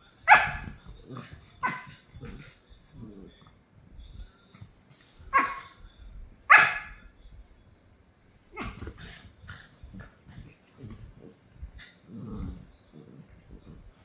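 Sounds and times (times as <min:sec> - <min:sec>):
puppies barking: 0:00.3 - 0:00.8, 0:06.5 - 0:07.0.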